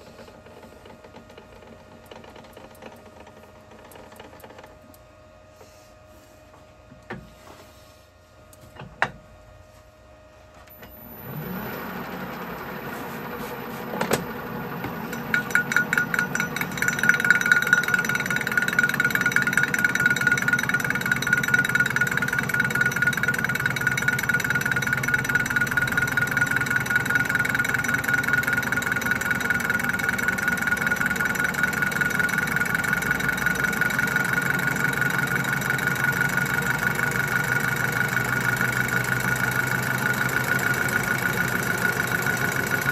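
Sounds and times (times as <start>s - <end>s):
high machine whine: 8.3s - 42.9s
lathe starting up: 10.7s - 42.9s
lathe tool clattering on steel: 14.9s - 37.8s.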